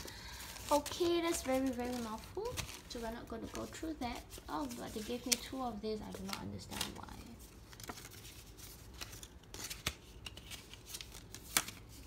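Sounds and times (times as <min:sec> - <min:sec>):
paper rustling and crinkling: 0:00.0 - 0:12.0
crisp paper snaps: 0:08.9 - 0:12.0.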